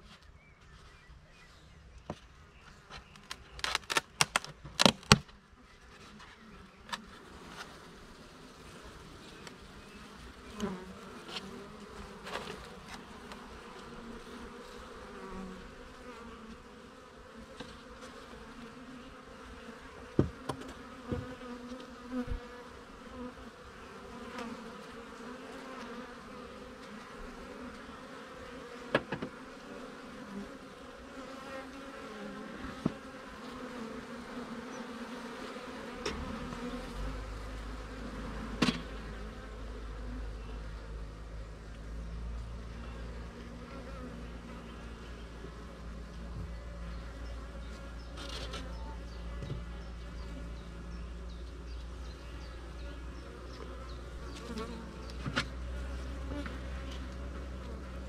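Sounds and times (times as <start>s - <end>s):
bees humming: 6.4s - 58.0s
hive tool knocking on wooden frames: 20.1s - 21.4s, 28.9s - 29.4s, 32.7s - 33.0s.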